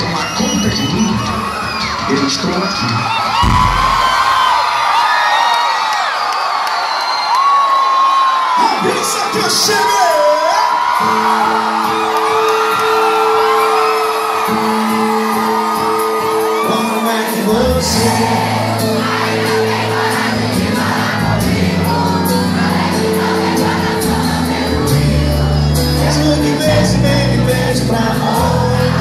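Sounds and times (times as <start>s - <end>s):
crowd cheering: 0.0s - 29.0s
bass: 3.4s - 4.4s, 20.5s - 23.2s, 23.8s - 29.0s
steady drum beat: 3.4s - 4.7s
people singing: 16.8s - 29.0s.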